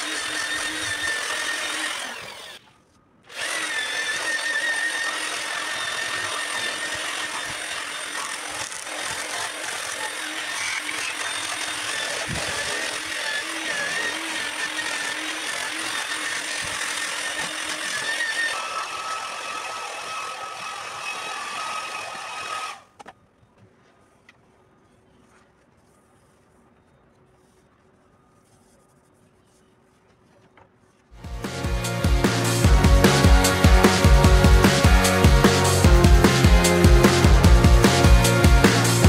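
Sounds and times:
grinder motor whine: 0.0s - 2.7s, 3.3s - 22.8s
sanding disc grinding wood: 0.0s - 2.7s, 3.3s - 22.8s.

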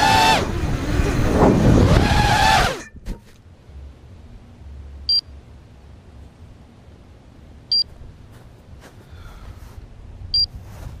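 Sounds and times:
wind rumbling: 0.0s - 11.0s
faint rustling: 7.9s - 9.9s, 10.5s - 11.0s.

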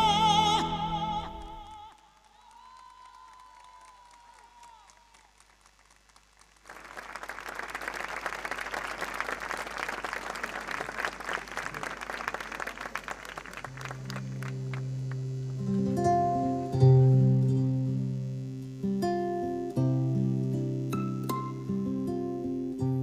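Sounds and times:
crowd applauding: 1.7s - 15.7s
sustained musical notes: 13.7s - 23.0s.

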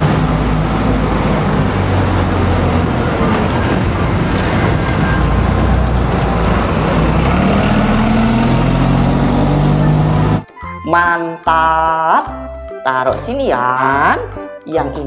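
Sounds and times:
bus diesel engine driving past: 0.0s - 10.8s.

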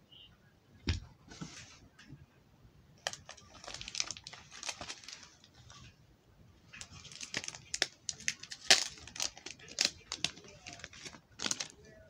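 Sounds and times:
plastic film crinkling: 3.0s - 5.9s, 6.7s - 12.0s.

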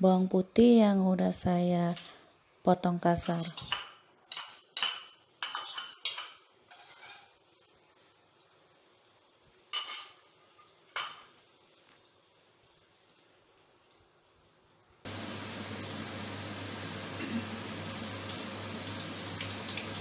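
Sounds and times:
metal spatula clinking on bowl: 3.2s - 7.4s, 9.7s - 10.3s.

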